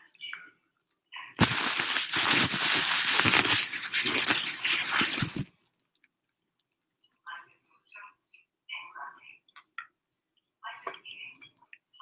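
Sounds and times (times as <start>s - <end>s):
rustling handling noise: 1.4s - 5.6s.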